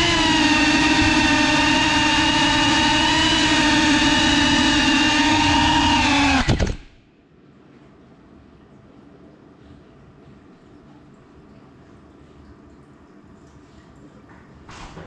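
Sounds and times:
drone propellers buzzing: 0:00.0 - 0:07.0
drone crashing with clattering knocks: 0:06.4 - 0:07.0.

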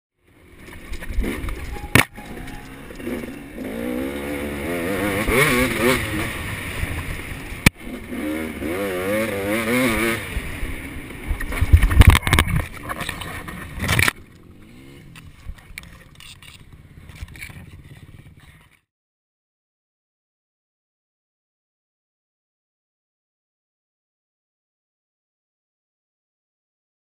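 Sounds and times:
dirt bike engine revving: 0:00.4 - 0:15.5.

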